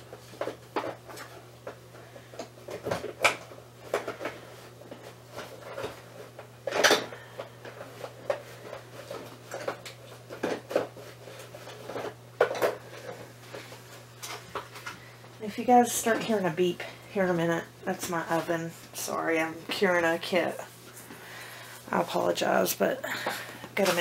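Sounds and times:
household items rattling and knocking: 0.0 - 15.0, 23.1 - 24.0
faint steady hum: 0.0 - 24.0.

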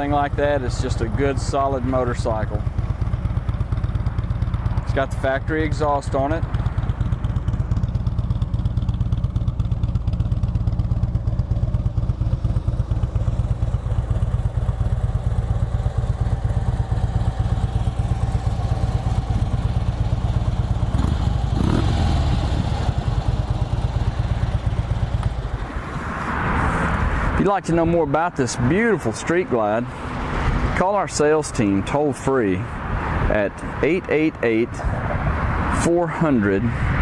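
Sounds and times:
motorcycle engine idling: 0.0 - 25.8.

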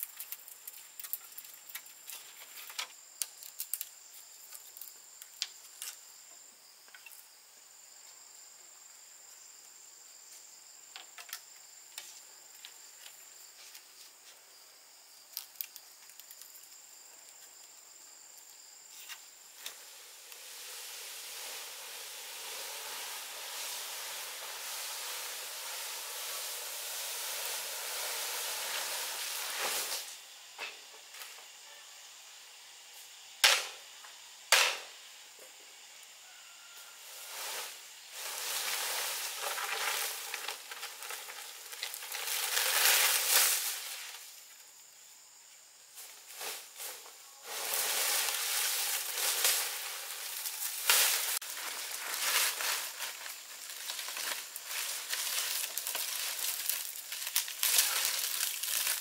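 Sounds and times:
insect trill: 0.0 - 59.0
food frying in hot oil: 19.7 - 30.1, 47.6 - 59.0.

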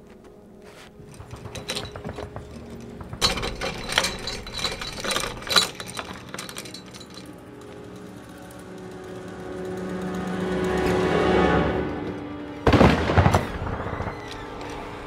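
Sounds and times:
door locks and bolts rattling: 1.0 - 8.1.

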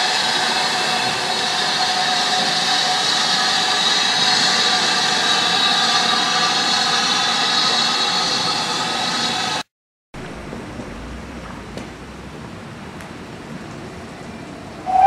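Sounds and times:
steam locomotive escaping steam: 0.0 - 9.7, 14.8 - 15.0.

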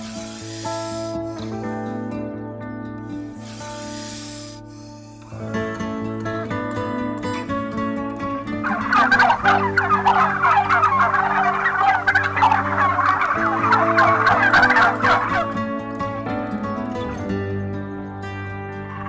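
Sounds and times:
background music: 0.0 - 19.0
turkeys gobbling: 8.6 - 15.5.

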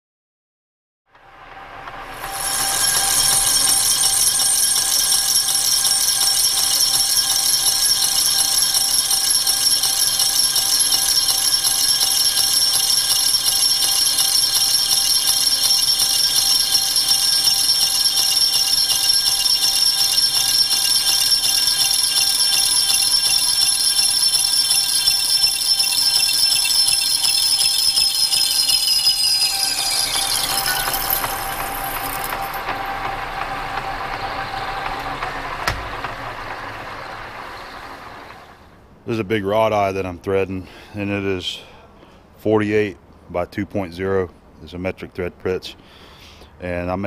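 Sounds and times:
lathe squealing high-pitched: 1.4 - 38.8.

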